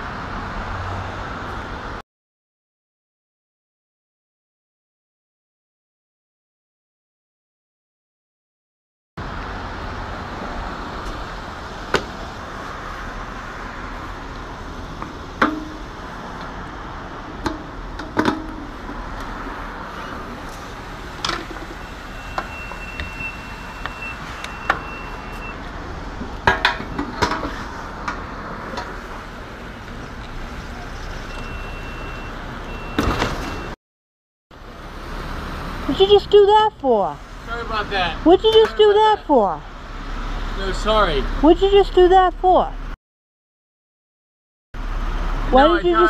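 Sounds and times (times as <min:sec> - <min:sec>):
road traffic: 0:00.0 - 0:02.0, 0:09.2 - 0:33.8, 0:34.5 - 0:43.0, 0:44.8 - 0:46.0.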